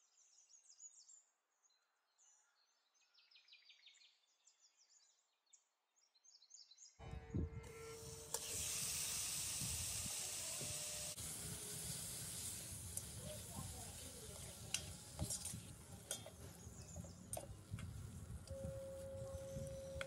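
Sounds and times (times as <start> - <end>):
meat sizzling in a pot: 7.9 - 17.4.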